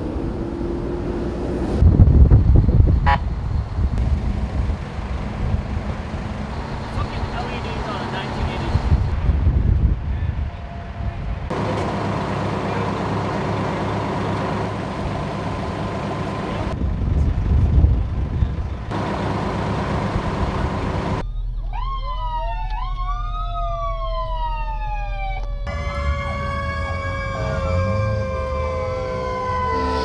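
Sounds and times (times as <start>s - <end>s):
fire engine engine running: 0.0s - 30.0s
wind noise on microphone: 1.6s - 6.0s, 8.6s - 11.5s, 16.8s - 18.9s
emergency sirens wailing: 10.0s - 16.8s, 18.9s - 30.0s.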